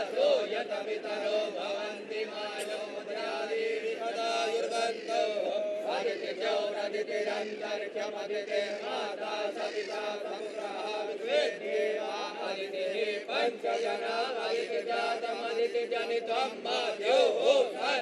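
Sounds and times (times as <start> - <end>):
man chanting melodically: 0.0 - 18.0.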